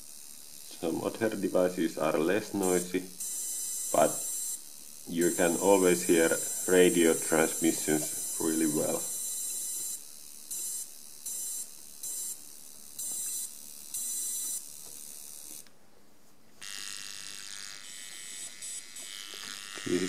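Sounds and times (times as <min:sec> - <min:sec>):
steady hiss with faint tones: 0:00.0 - 0:16.6
bursts of high hiss: 0:00.8 - 0:14.3.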